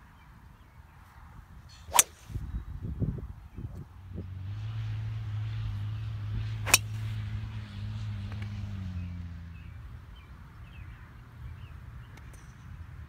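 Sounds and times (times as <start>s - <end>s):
low engine hum: 3.7s - 13.0s.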